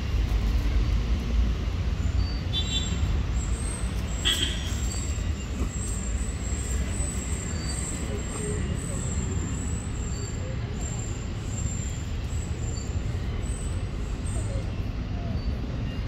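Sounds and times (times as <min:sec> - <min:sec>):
low rumble of road traffic: 0:00.0 - 0:16.0.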